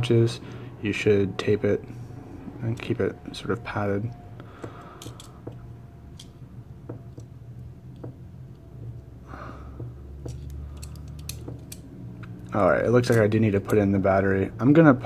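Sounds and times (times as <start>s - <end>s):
low steady hum: 0.0s - 15.0s
calipers clicking and tapping: 9.8s - 12.4s.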